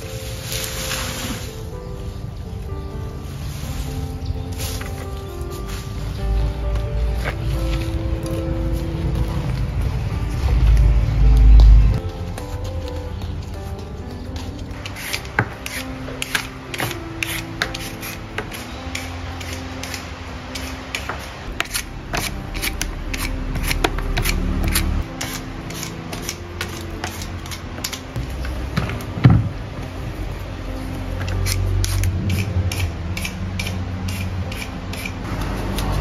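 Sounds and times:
peeler scraping sweet potato: 0:14.8 - 0:20.0, 0:20.6 - 0:28.0, 0:31.4 - 0:36.0.

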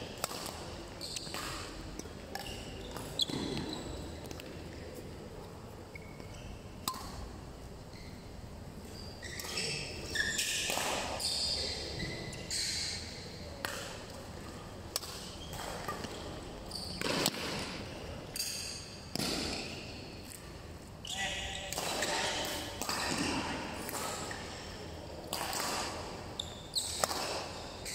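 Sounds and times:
racket hitting shuttlecock: 0:00.2 - 0:04.5, 0:06.8 - 0:07.3, 0:10.4 - 0:11.2, 0:14.9 - 0:16.2, 0:16.9 - 0:20.4, 0:21.7 - 0:26.2, 0:26.8 - 0:27.9.

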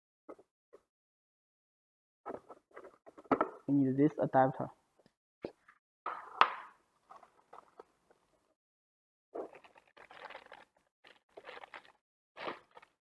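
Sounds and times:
plastic bag crinkling: 0:09.4 - 0:13.0.

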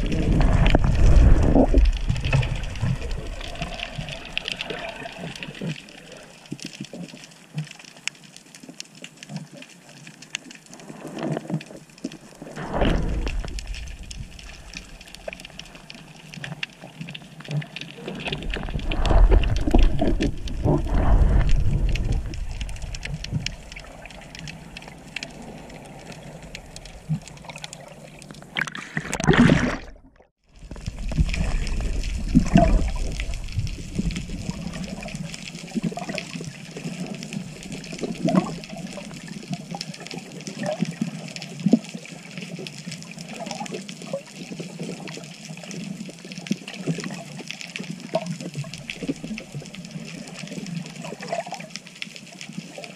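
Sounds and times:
low rumbling water surges: 0:00.0 - 0:06.6, 0:11.8 - 0:17.0, 0:17.7 - 0:44.4
crackle of fine clicks: 0:00.0 - 0:29.4, 0:30.4 - 0:52.9
underwater sloshing and gurgling: 0:00.0 - 0:52.9.

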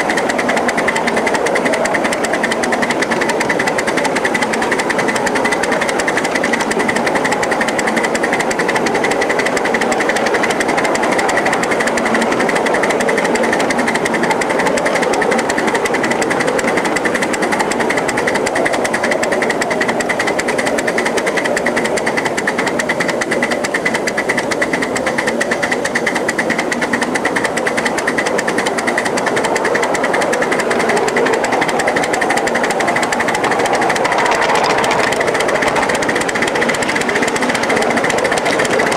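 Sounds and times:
steam locomotive exhaust beats: 0:00.0 - 0:38.9.

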